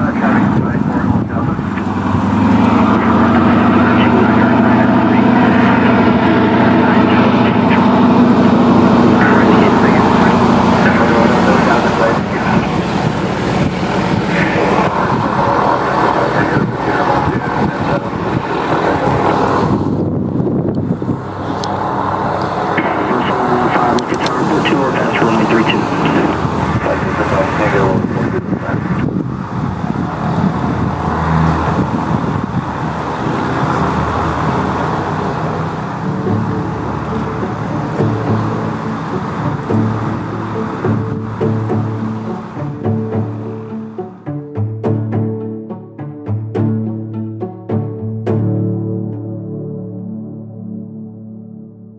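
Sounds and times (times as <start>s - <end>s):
wind noise on microphone: 0.0s - 43.7s
floatplane engine drone: 0.0s - 51.9s.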